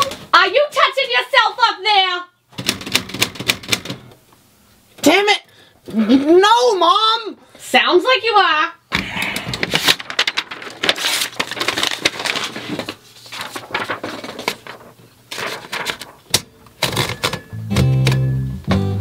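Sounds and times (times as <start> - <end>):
typewriter platen clicks: 2.6 - 4.0, 15.8 - 18.3
paper rustling: 9.2 - 17.4
acoustic guitar music: 16.5 - 19.0.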